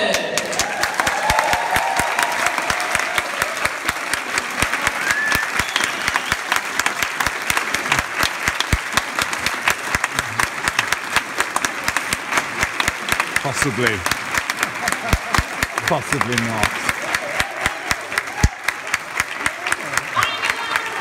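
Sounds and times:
audience applauding: 0.0 - 21.0.

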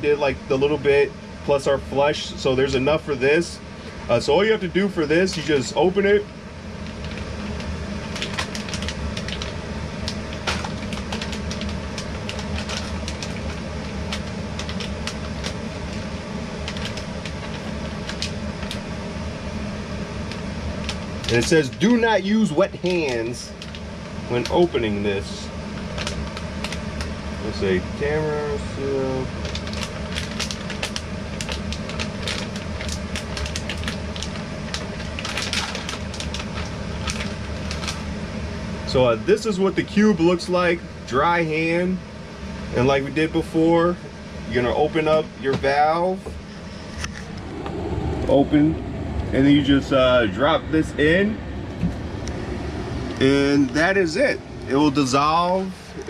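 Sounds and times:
low hum: 0.0 - 56.0
plastic packet crinkling: 6.9 - 16.0, 16.6 - 18.8, 20.8 - 22.0, 22.7 - 24.6, 25.8 - 27.1, 29.4 - 38.0.

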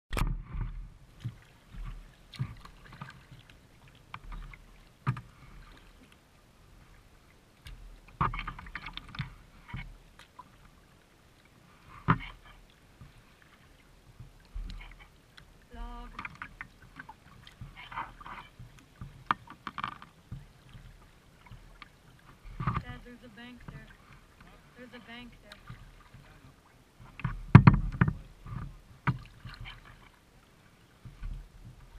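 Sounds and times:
paddle splashing in water: 0.1 - 31.9
knocks on kayak hull: 27.2 - 29.6.

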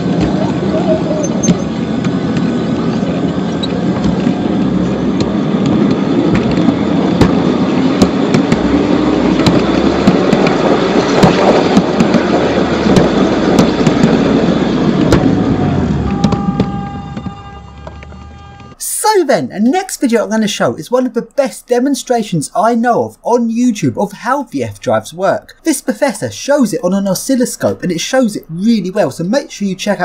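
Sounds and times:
steel wheels rolling on rails: 0.0 - 18.8.

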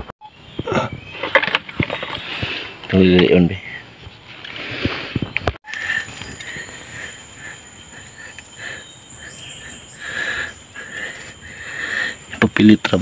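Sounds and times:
background hiss: 4.5 - 13.0.

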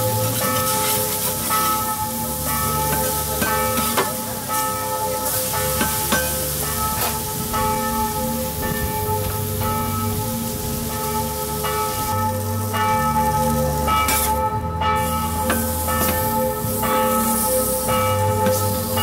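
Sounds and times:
bell-like chiming music: 0.0 - 19.0
meat frying on a griddle: 0.1 - 12.7, 15.1 - 19.0
bass line: 4.8 - 19.0.

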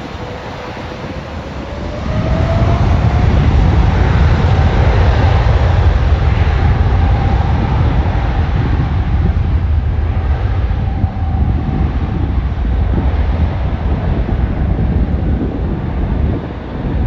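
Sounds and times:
jet engines rumbling: 0.0 - 17.0.

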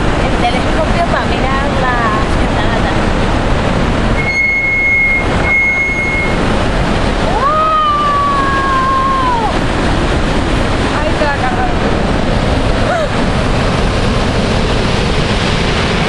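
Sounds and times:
waterfall roaring: 0.0 - 16.0
sliding tone: 4.1 - 6.6.

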